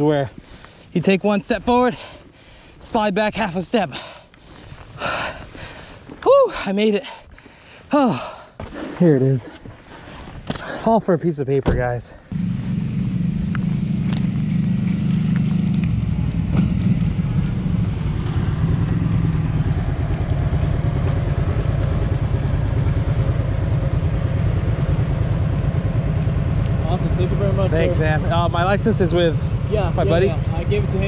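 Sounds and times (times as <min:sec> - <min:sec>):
vehicle engine running: 0:12.3 - 0:31.0.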